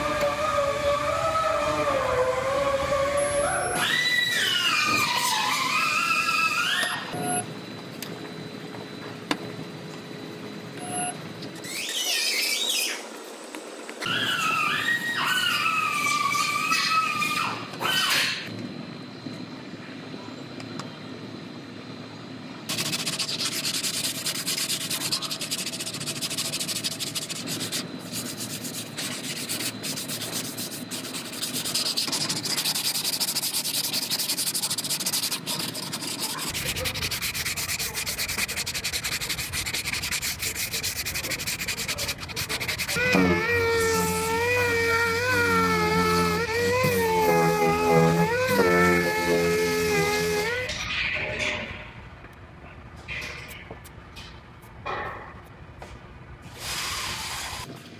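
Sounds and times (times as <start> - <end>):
orbital sander whine: 22.7 - 50.7
scratchy hand sanding: 22.7 - 50.7.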